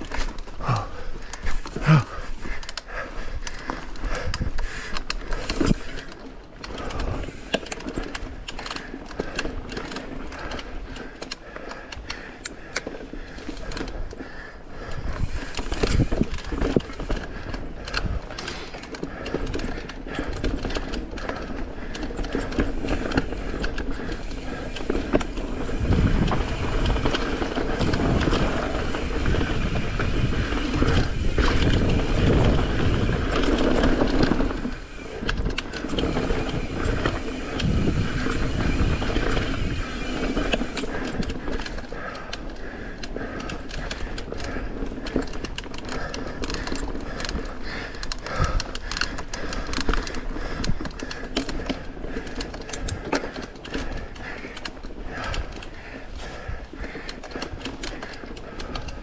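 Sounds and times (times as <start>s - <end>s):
bike rattling and knocking: 0.0s - 59.0s
bike tyres rolling over dirt: 0.0s - 59.0s
wind on microphone: 23.0s - 41.5s.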